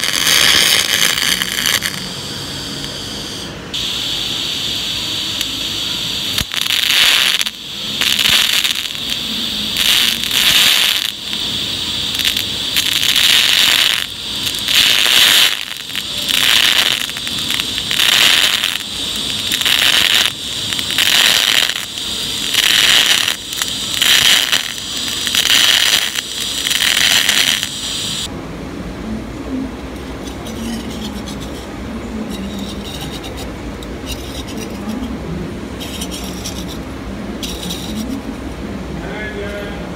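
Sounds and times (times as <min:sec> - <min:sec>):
welding arc crackling hiss: 0:00.0 - 0:28.3, 0:35.8 - 0:38.3
steady low hum: 0:00.0 - 0:39.9.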